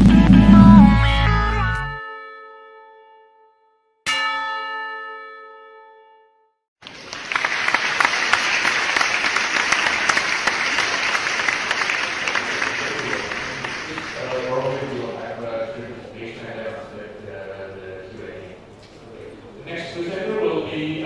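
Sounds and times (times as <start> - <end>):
bell-like chime: 4.1 - 6.4
audience applause: 6.8 - 15.2.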